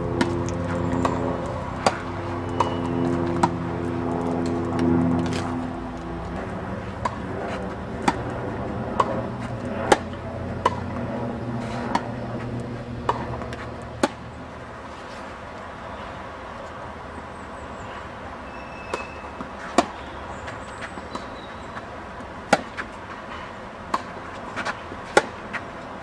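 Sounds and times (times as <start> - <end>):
tennis racket hitting ball: 0.1 - 5.6, 6.2 - 8.3, 8.9 - 14.3, 18.9 - 20.1, 20.8 - 25.8.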